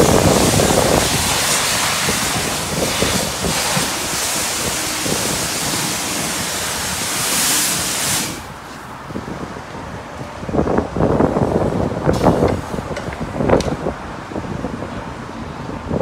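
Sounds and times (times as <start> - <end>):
pressure washer spraying water: 0.0 - 8.8.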